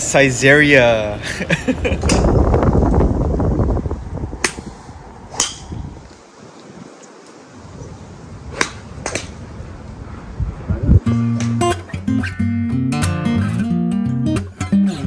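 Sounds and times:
wind buffeting microphone: 0.0s - 12.4s
golf club striking ball: 4.4s - 4.7s, 5.3s - 5.9s, 8.5s - 9.4s, 11.3s - 11.8s.

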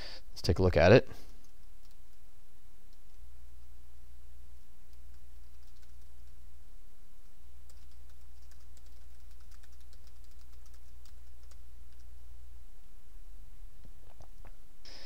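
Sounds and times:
steady low hum: 0.0s - 15.0s
keyboard typing clicks: 4.9s - 6.1s, 7.7s - 12.1s.

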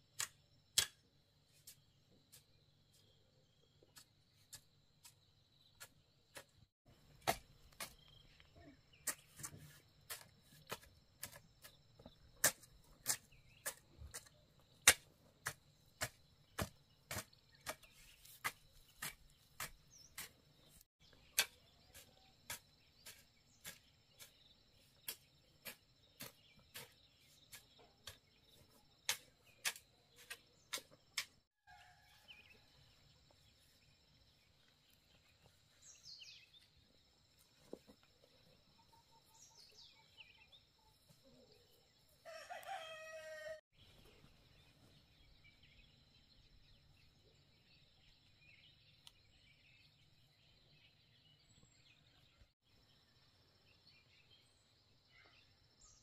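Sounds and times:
hoe striking soil: 8.9s - 31.4s.

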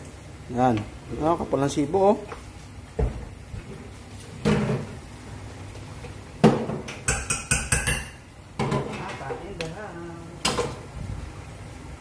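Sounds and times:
metal kitchenware clattering: 6.6s - 9.3s.

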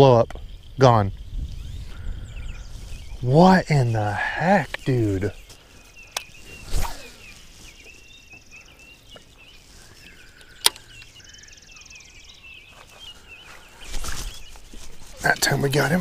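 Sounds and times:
birds chirping: 0.0s - 16.0s
fishing rod swish: 6.6s - 7.2s.

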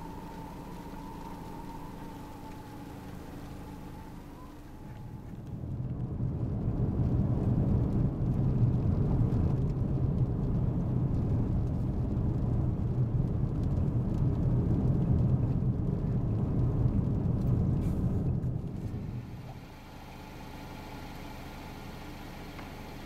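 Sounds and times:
car cabin road rumble: 0.0s - 23.0s.

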